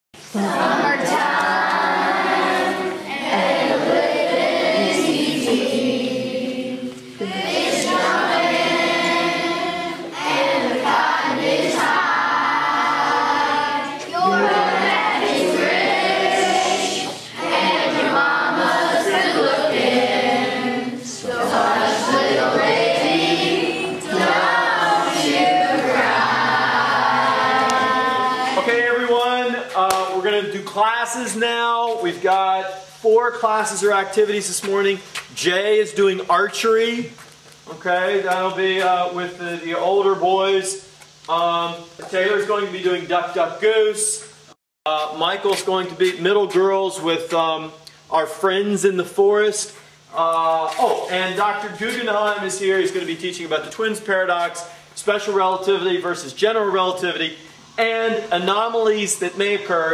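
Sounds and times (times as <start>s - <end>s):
choir singing: 0.3s - 29.1s.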